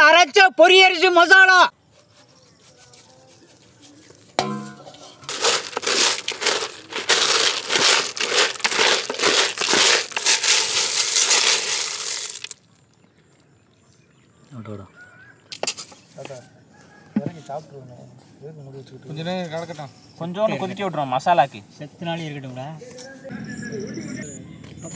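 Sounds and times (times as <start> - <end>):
snail shells rattling in clay pot: 5.1 - 12.6.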